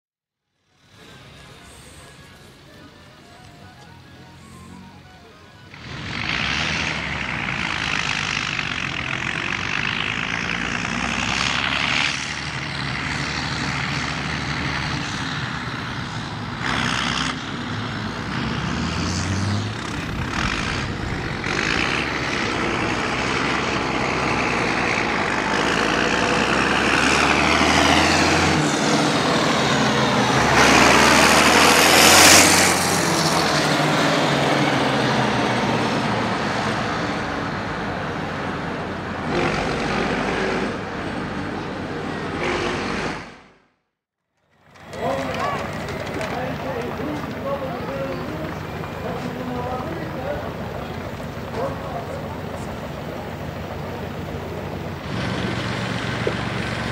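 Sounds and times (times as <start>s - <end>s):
tractor diesel engine driving past: 0.4s - 43.8s, 44.4s - 56.9s.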